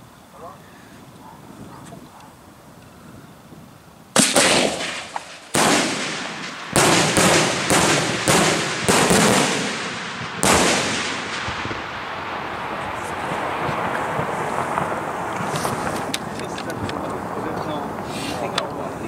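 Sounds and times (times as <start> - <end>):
firework shells bursting: 4.2 - 17.3.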